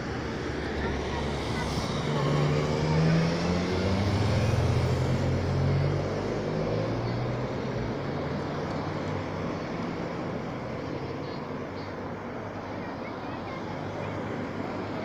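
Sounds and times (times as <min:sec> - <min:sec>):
road noise rushing: 0:00.0 - 0:15.0
vehicle engine hum: 0:00.0 - 0:15.0
car passing by: 0:00.1 - 0:11.2.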